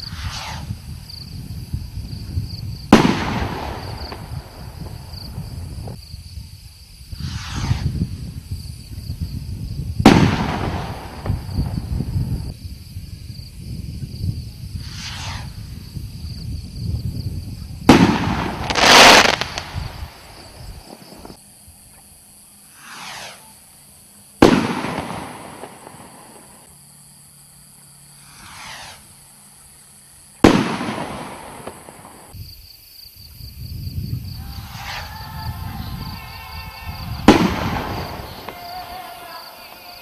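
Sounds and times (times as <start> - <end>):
firework bang: 0.0 - 1.3, 2.1 - 6.0, 7.2 - 8.4, 10.0 - 12.5, 14.8 - 16.0, 17.8 - 21.4, 22.8 - 23.6, 24.4 - 26.7, 28.2 - 29.2, 30.4 - 32.4, 34.6 - 39.9
firework rocket whoosh: 0.0 - 6.0, 6.6 - 12.5, 14.6 - 21.4, 22.6 - 26.7, 28.0 - 32.5, 34.2 - 39.9
firework crackle: 0.0 - 12.5, 14.6 - 21.4, 22.4 - 26.9, 27.6 - 32.6, 34.3 - 40.0.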